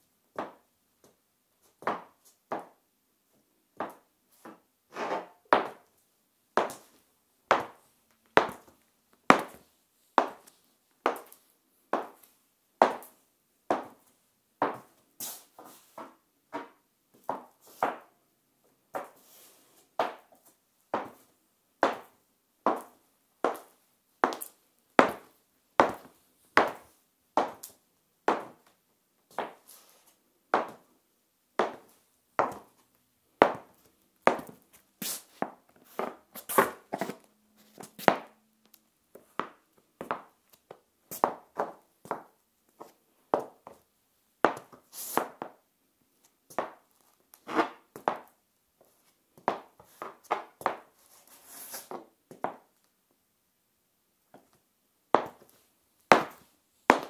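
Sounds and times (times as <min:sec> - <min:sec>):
high heels clicking on tiles: 0:08.4 - 0:09.6, 0:22.7 - 0:28.7, 0:33.4 - 0:34.7, 0:35.4 - 0:43.8, 0:49.4 - 0:51.0, 0:55.2 - 0:57.0.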